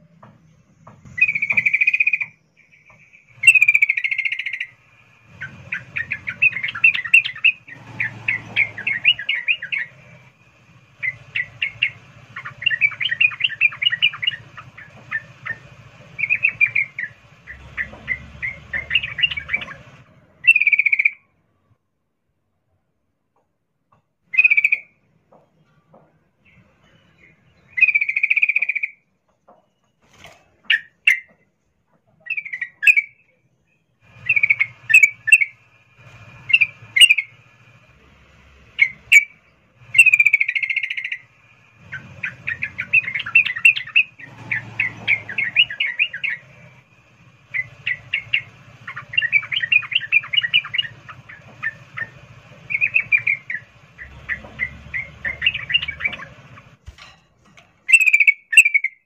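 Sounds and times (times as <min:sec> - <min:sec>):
bird chirping and chattering: 0:00.2 - 0:21.2, 0:24.3 - 0:25.0, 0:26.4 - 0:29.0, 0:30.6 - 0:31.4, 0:32.1 - 0:33.4, 0:34.0 - 0:38.0, 0:38.6 - 0:57.1, 0:57.8 - 0:59.0.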